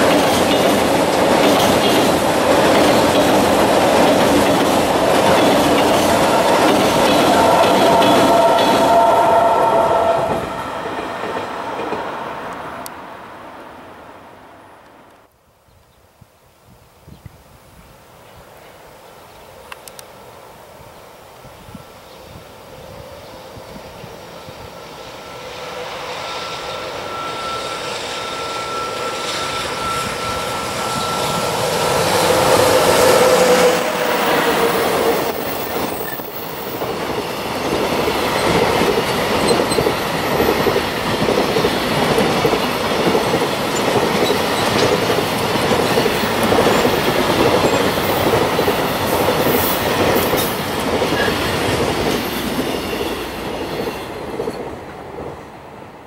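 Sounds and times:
train wheels clattering: 0.0s - 12.0s
electric locomotive whine: 0.0s - 15.3s, 19.4s - 56.0s.

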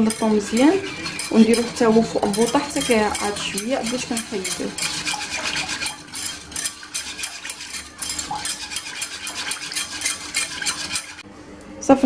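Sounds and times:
whisk ticking against metal saucepan: 0.0s - 11.2s.

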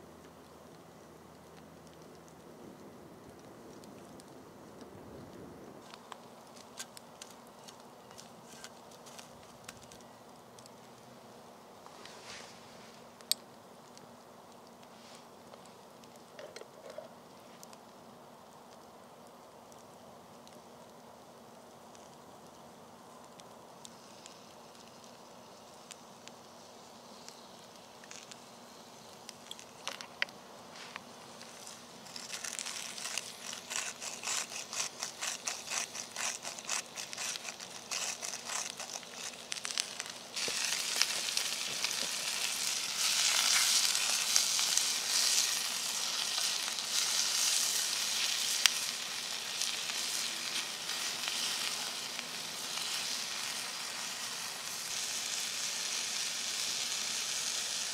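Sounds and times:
faint crackles: 0.0s - 57.9s
onion sizzling in oil: 30.7s - 57.9s
packet crinkling: 31.3s - 55.3s.

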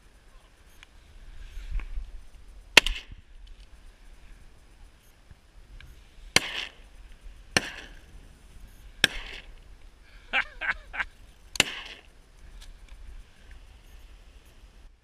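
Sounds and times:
shotgun blasts with echo: 2.8s - 3.2s, 6.3s - 6.8s, 7.5s - 8.1s, 9.0s - 9.5s, 11.6s - 12.1s
short cries: 10.2s - 11.1s.

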